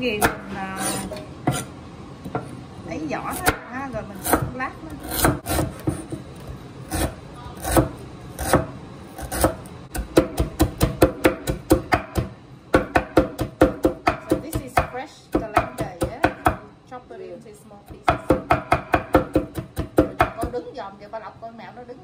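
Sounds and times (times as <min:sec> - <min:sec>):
knife chopping on wooden board: 0:00.2 - 0:01.7, 0:03.3 - 0:06.3, 0:06.9 - 0:16.6, 0:17.9 - 0:20.6.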